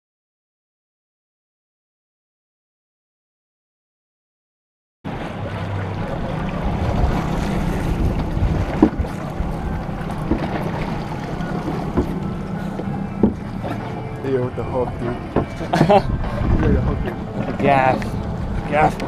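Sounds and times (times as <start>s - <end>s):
boat engine running: 5.1s - 19.0s
water washing past hull: 5.1s - 19.0s
wind buffeting microphone: 5.1s - 19.0s.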